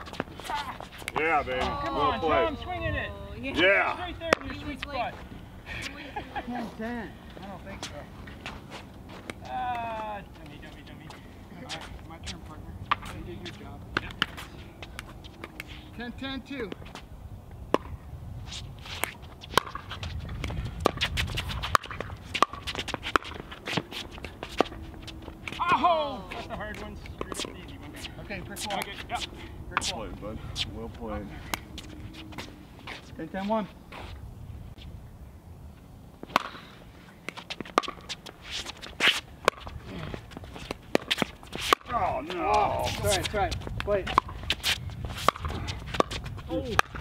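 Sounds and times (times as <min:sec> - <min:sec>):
footsteps shuffling on hard court: 0:00.0 - 0:02.4, 0:07.3 - 0:16.0, 0:18.4 - 0:34.9, 0:37.0 - 0:46.6.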